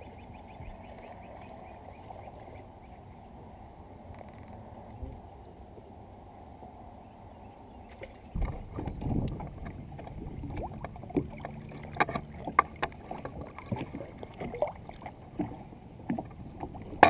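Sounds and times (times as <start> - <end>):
water lapping against boat hull: 7.8 - 17.0.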